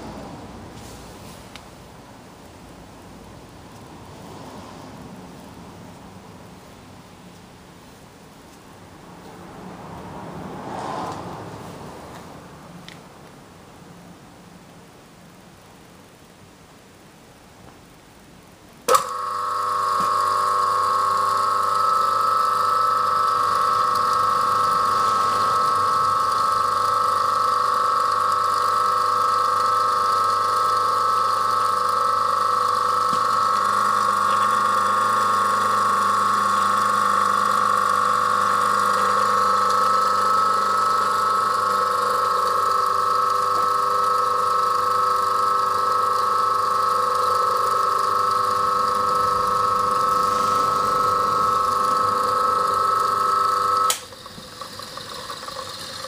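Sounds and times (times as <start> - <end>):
electric motor whining: 18.9 - 56.0.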